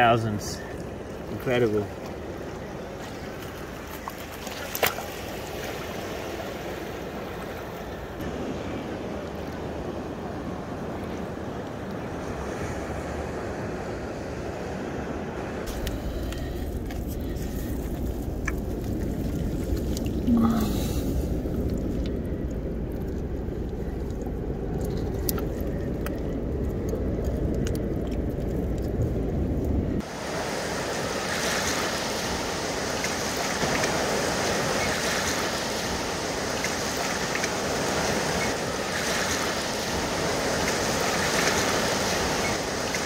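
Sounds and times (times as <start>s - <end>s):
water lapping in rock pool: 0.0s - 12.8s, 15.6s - 43.0s
water dripping: 15.7s - 30.0s.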